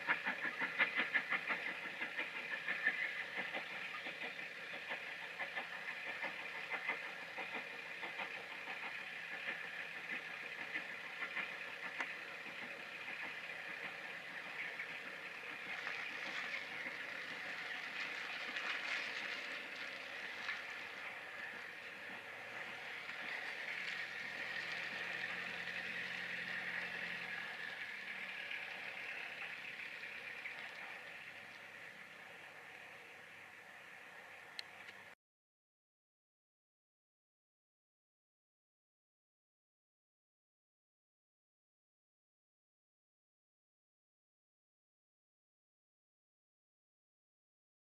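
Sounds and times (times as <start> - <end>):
steam locomotive working hard: 0.0 - 35.2
wheels clicking over rail joints: 0.0 - 35.2.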